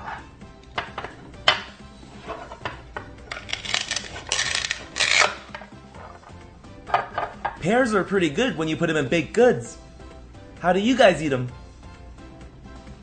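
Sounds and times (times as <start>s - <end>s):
soft background music: 0.0s - 13.0s
velcro tearing: 3.3s - 5.5s.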